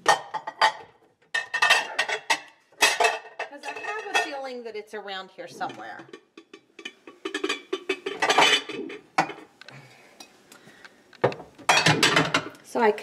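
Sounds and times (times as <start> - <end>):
glass dishes clinking: 0.0 - 4.4, 6.1 - 9.5, 11.3 - 12.5.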